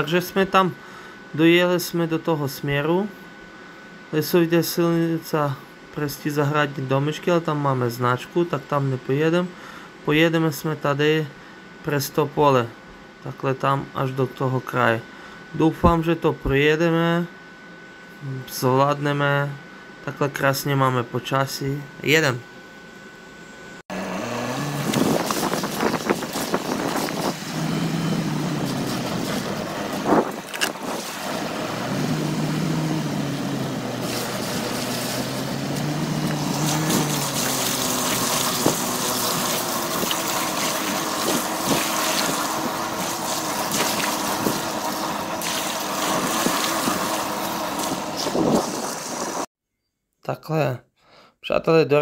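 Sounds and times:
car engine revving: 0:23.9 - 0:49.5
tyres splashing through water: 0:33.9 - 0:48.2.

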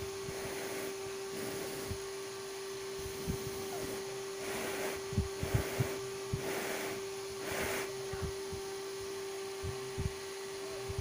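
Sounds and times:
steady electrical hum: 0:00.0 - 0:11.0
puffs of breath: 0:03.1 - 0:08.0.

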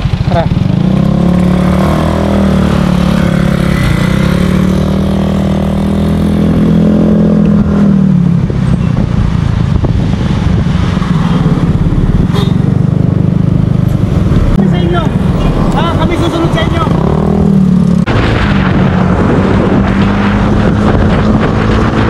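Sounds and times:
motor scooter engine: 0:00.0 - 0:06.6.

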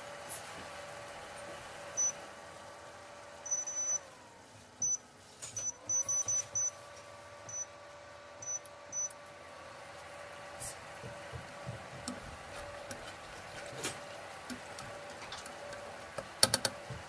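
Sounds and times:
cooktop electrical hum: 0:00.0 - 0:17.0
short high beeps: 0:02.0 - 0:02.2, 0:03.5 - 0:04.0, 0:05.6 - 0:06.8, 0:07.5 - 0:07.7, 0:08.4 - 0:09.1.

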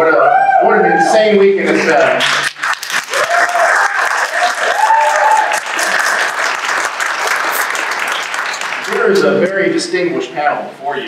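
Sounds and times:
audience applauding: 0:01.8 - 0:09.6.

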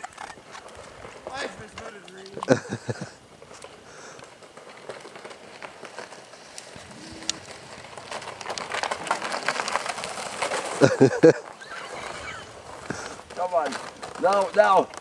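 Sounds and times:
sled scraping over ice: 0:00.0 - 0:15.0.

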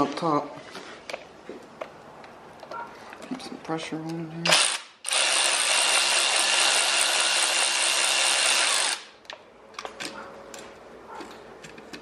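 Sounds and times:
electric ratchet running: 0:04.5 - 0:09.2.

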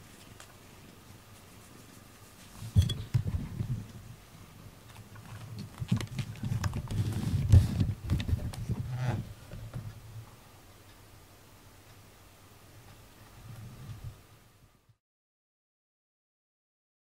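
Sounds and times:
fur rubbing on microphone: 0:06.8 - 0:09.3.

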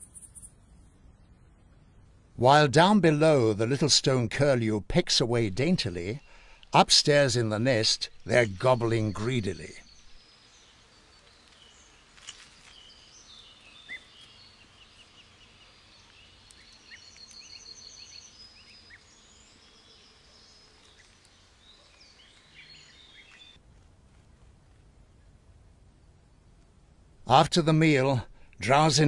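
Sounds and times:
songbirds chirping and trilling: 0:00.0 - 0:23.6.

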